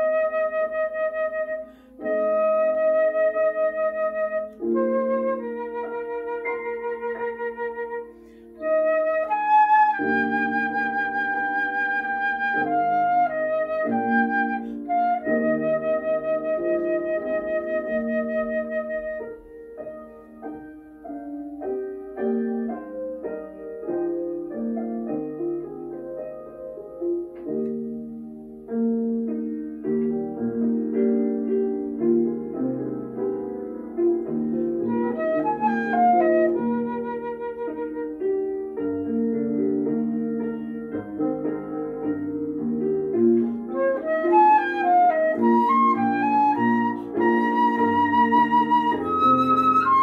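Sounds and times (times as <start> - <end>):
flute-like woodwind melody: 0.0 - 26.2, 33.9 - 40.9, 43.2 - 50.0
piano chords: 0.0 - 50.0.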